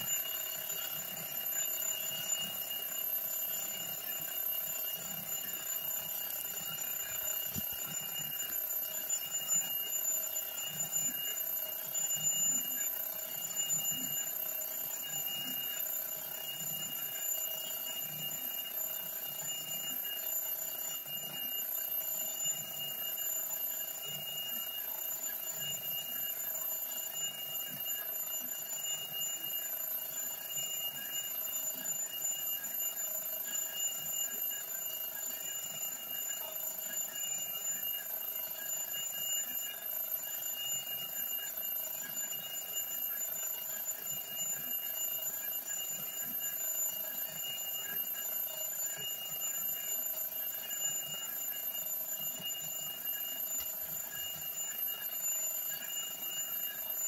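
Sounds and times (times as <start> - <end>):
clockwork toy whirring: 0.0 - 57.0.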